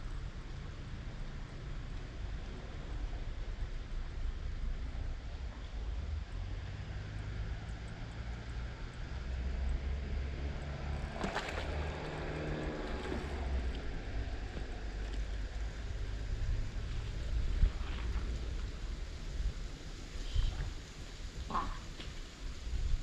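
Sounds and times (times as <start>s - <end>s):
wind rumble on microphone: 0.0s - 23.0s
fish splashing in water: 10.5s - 14.6s.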